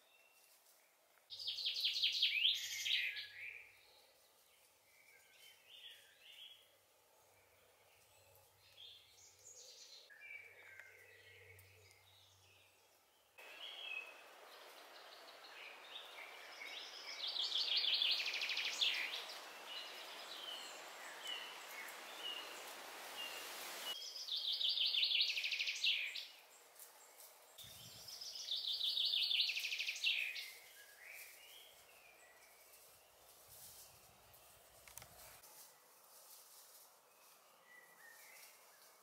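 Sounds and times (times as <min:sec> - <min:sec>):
songbird trilling: 0:13.4 - 0:22.6
steady hiss: 0:13.4 - 0:24.0
bird chirps: 0:13.4 - 0:26.4, 0:27.6 - 0:32.9.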